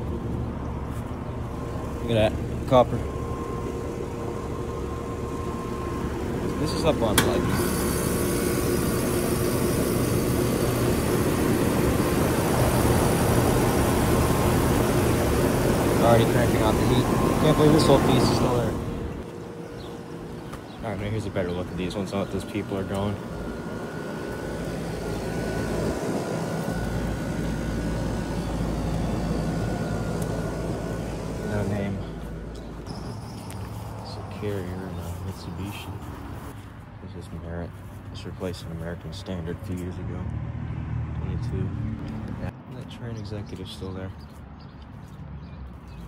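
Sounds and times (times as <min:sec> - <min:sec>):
condenser fan blowing air: 0:00.0 - 0:37.6
compressor hum: 0:00.0 - 0:40.2
faint high whine: 0:01.5 - 0:35.8.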